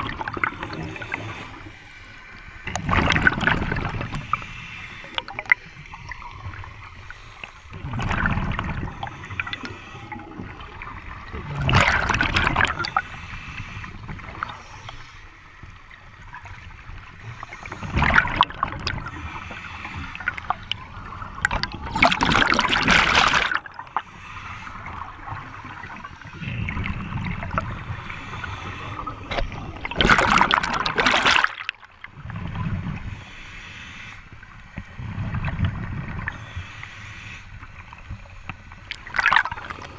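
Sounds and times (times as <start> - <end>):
exhaled bubbles rushing: 0.0 - 1.5, 2.6 - 4.2, 7.8 - 13.0, 17.7 - 19.2, 20.2 - 23.8, 28.9 - 33.0, 39.0 - 39.9
low rumbles of air and water: 0.0 - 39.9.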